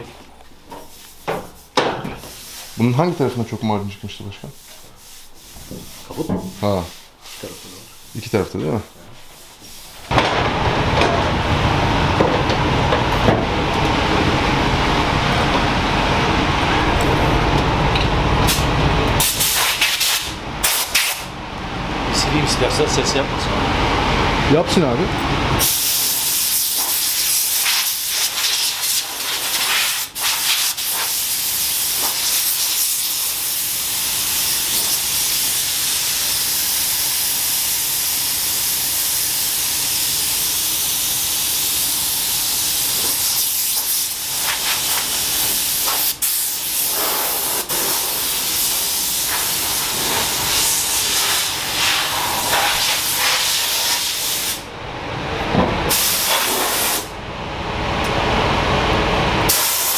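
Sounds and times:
air blow gun hissing: 18.4 - 21.3, 25.6 - 54.7, 55.9 - 57.1, 59.5 - 59.9.

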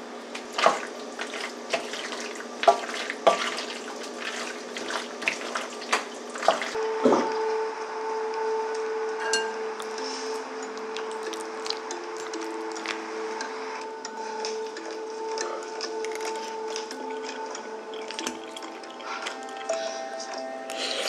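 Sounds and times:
soft music with held notes: 6.8 - 21.0.

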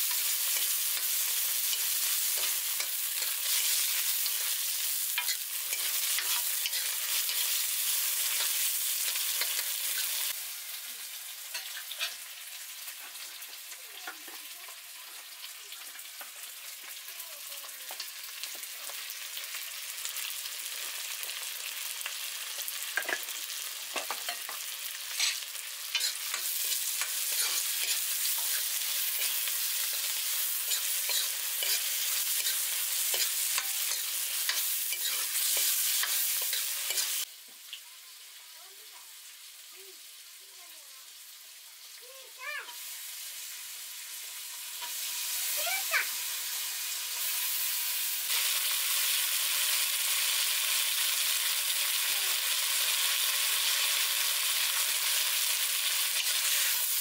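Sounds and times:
tomato and onion sizzling in oil: 0.0 - 57.0
metal spatula scraping a pan: 0.1 - 10.3, 11.5 - 12.3, 24.0 - 37.2.

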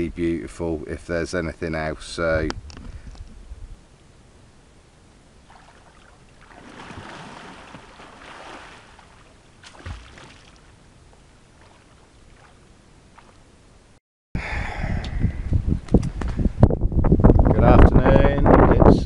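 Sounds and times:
water splashing from swimmer: 5.5 - 10.7.

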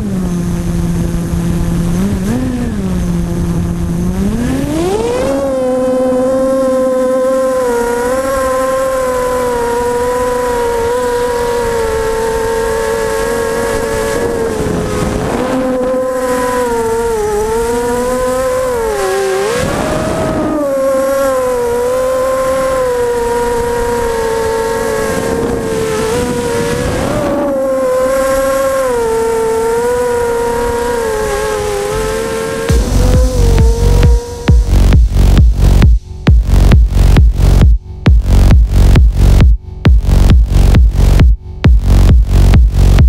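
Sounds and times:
drone motors whining: 0.0 - 43.0
wind noise: 7.6 - 43.0.

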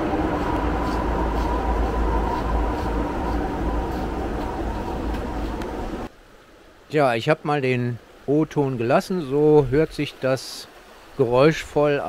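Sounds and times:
train rumbling over bridge: 0.0 - 6.1.

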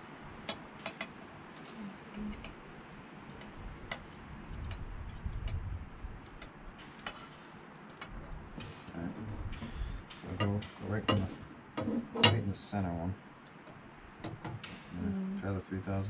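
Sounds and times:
dull low handling rumble: 1.6 - 6.8.

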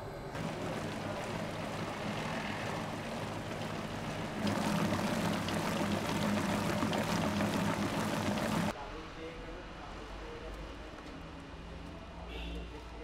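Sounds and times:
stand mixer motor humming: 0.4 - 8.7
wire whisk beating batter: 0.4 - 8.7.

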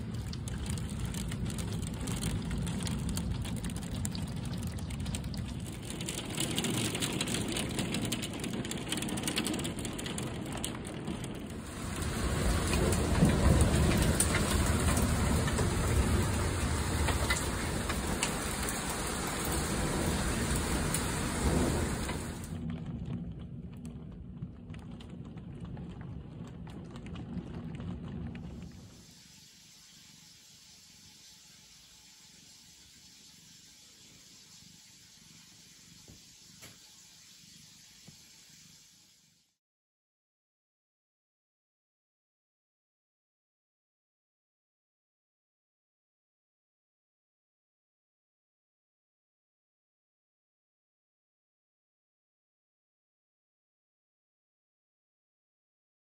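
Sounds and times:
heavy rain pouring: 0.0 - 23.7, 24.8 - 30.2.

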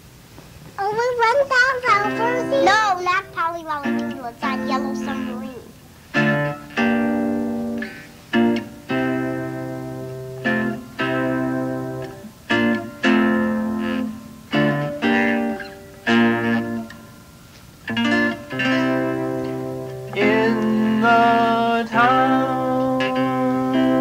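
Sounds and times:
chords strummed on strings: 1.8 - 24.0.

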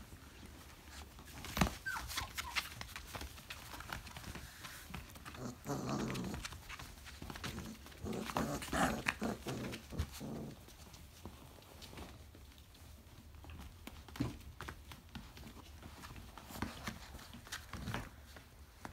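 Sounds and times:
paws clicking on plastic tarp: 0.0 - 18.9
puppies growling and yipping: 4.9 - 10.7.

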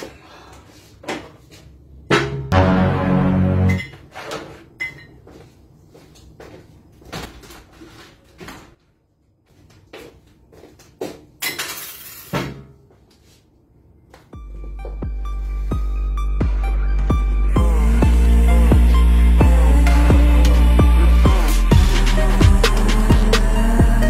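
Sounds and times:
music playing: 2.5 - 4.0, 14.4 - 24.0.

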